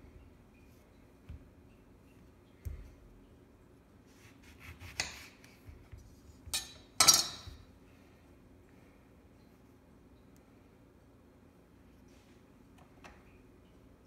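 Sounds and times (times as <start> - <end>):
knife on glass cutting board: 4.4 - 5.6.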